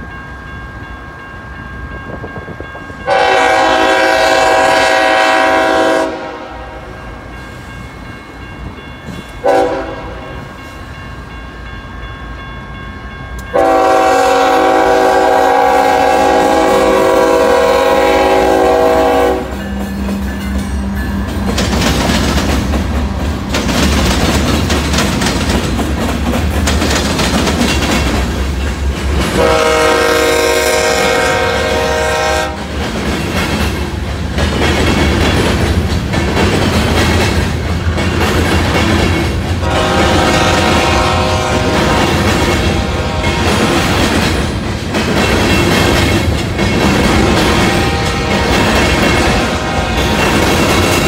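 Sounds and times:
train wheels rumbling on rails: 0.0 - 51.0
train air horn blasts: 3.0 - 7.0, 9.4 - 10.5, 13.5 - 19.7, 29.3 - 32.7, 39.6 - 44.0, 47.1 - 50.4.

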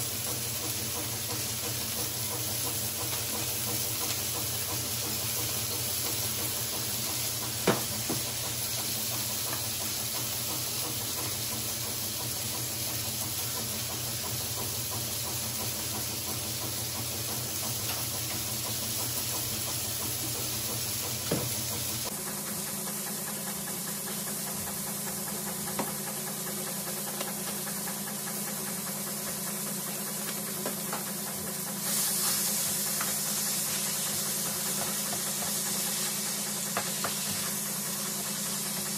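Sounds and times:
meat sizzling in a frying pan: 0.0 - 22.1, 31.8 - 38.8.

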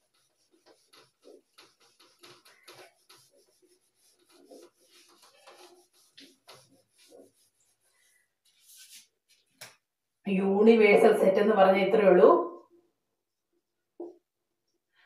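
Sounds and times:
duster rubbing a whiteboard: 0.0 - 9.4.

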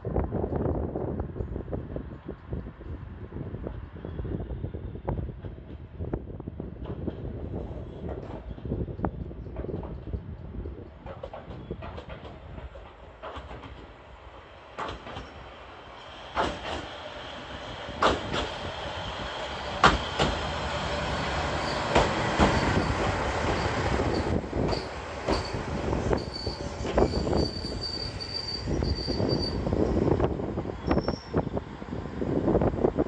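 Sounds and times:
train running noise: 0.1 - 33.0
train wheels knocking on rail joints: 9.5 - 14.0, 14.7 - 15.4, 16.3 - 16.9, 18.0 - 18.6, 19.7 - 20.5, 21.8 - 27.2
high brake squeal: 21.1 - 29.8, 30.8 - 31.5.

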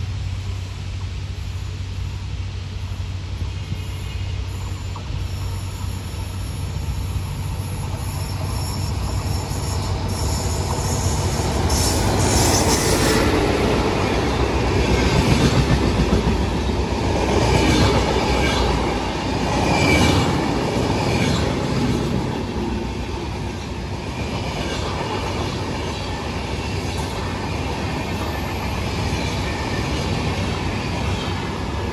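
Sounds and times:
passenger train passing: 0.0 - 31.9
train wheels clattering on rails: 7.6 - 31.9.

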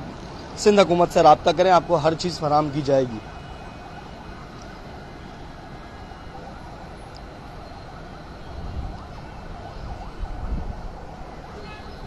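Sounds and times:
city traffic hum: 0.0 - 12.0
wind buffeting microphone: 6.4 - 12.0.

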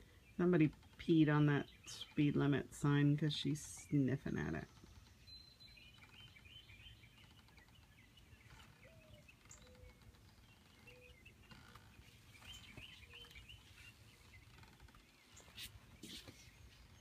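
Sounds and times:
faint birdsong chirps and trills: 0.0 - 17.0.

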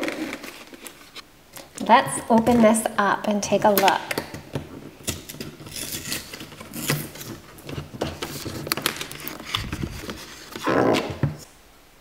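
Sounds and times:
plastic packaging crinkling: 5.1 - 11.1.

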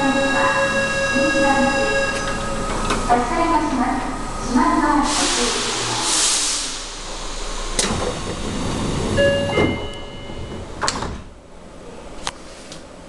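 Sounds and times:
train doors sliding shut: 0.0 - 3.3, 5.0 - 11.4
two-tone chime: 9.2 - 10.5.

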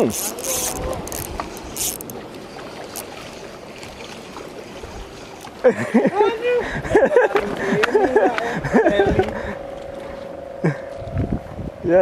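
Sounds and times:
spinning reel being cranked: 0.0 - 2.1.

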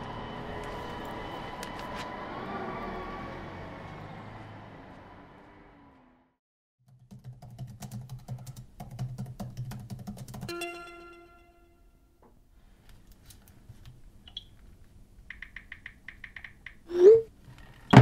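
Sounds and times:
laptop keyboard typing: 6.9 - 10.5, 15.3 - 16.8
ringing note: 10.5 - 12.2.

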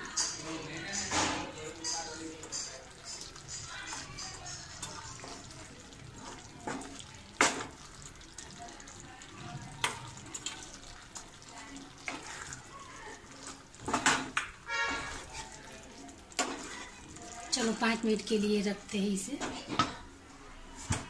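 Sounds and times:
spatula scraping pan in gravy: 13.4 - 15.6.

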